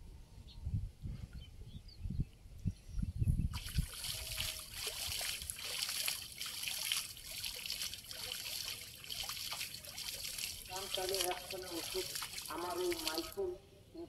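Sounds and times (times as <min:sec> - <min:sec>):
water splashing and trickling: 0:03.5 - 0:13.4.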